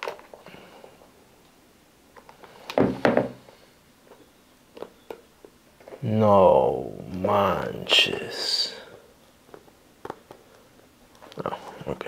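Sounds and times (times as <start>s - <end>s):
boot thumping on wooden table: 2.8s - 3.4s.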